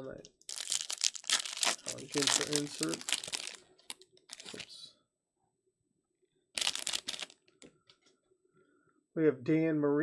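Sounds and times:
foil wrapper crinkling: 0.4 - 4.8, 6.6 - 7.4.

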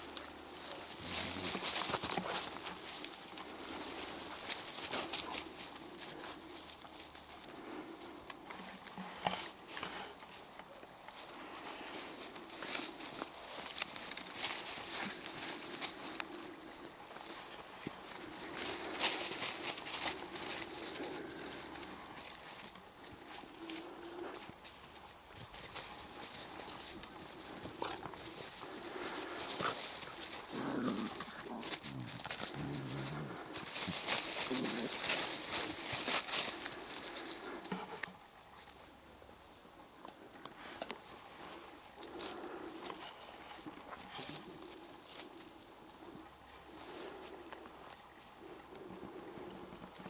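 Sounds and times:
puppies rustling in dry grass: 0.0 - 50.0
puppy growling: 27.6 - 35.7.

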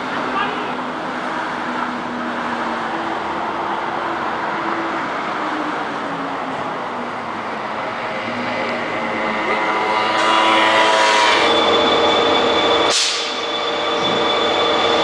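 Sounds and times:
bus engine hum: 0.0 - 10.0
city street traffic: 0.0 - 15.0.

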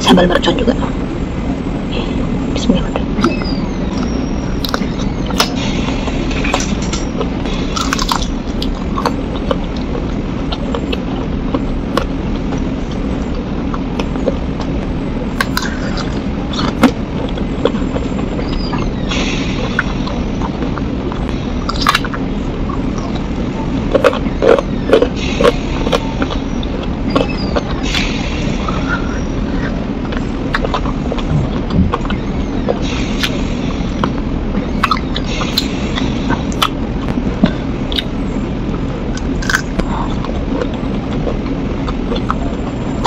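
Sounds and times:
steady low hum: 0.0 - 43.0
person chewing and biting: 6.4 - 14.8, 15.4 - 18.9, 19.7 - 27.9, 36.3 - 38.2, 39.1 - 42.6.

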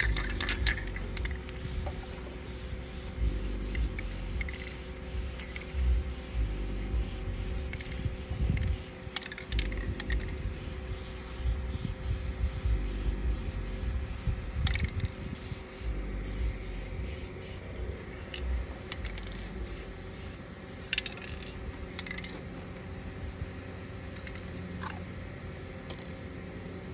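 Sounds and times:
spray paint can hissing: 0.0 - 17.8, 18.9 - 22.2
low uneven rumble: 0.0 - 25.2.

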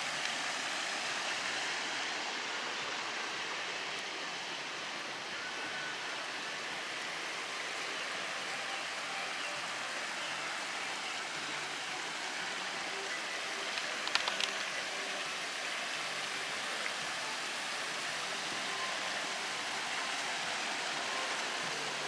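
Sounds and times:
stream rushing over cascades: 0.0 - 22.0
sharp clicks: 13.7 - 14.7.

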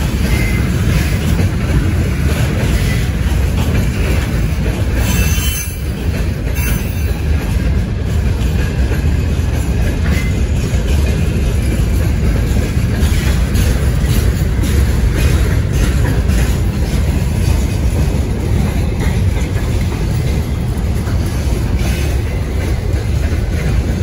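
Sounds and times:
train wheels squealing: 0.0 - 1.9, 2.6 - 7.5, 10.0 - 11.0, 21.4 - 23.0
freight train rumbling on rails: 0.0 - 24.0.

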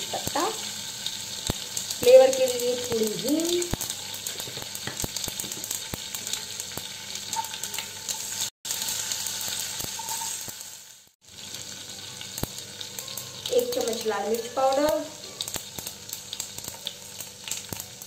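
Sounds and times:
spices sizzling in hot oil: 0.0 - 18.0
small crackling pops: 3.6 - 4.0.

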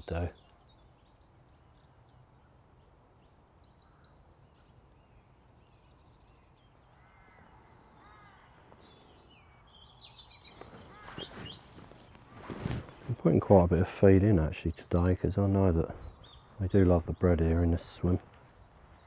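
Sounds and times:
small birds chirping: 0.0 - 19.0
clicks and rustles: 10.6 - 13.2.

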